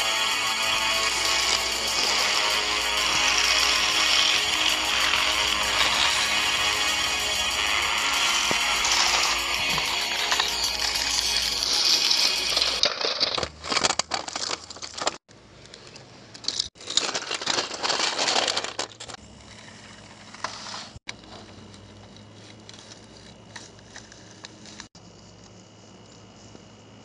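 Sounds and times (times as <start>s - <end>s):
thin high tone: 0.0s - 12.8s.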